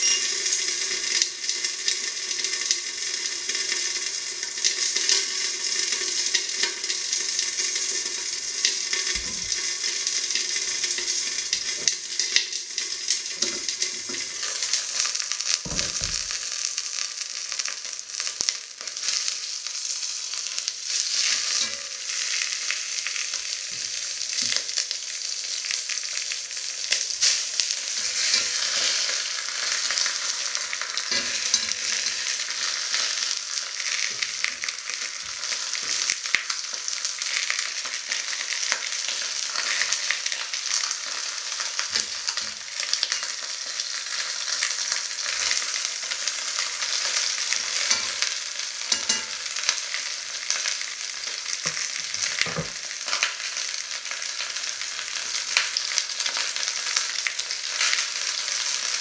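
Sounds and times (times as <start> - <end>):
chicken frying in hot fat: 0.0 - 59.0
pieces knocking in pot: 15.7 - 16.4, 48.9 - 49.4.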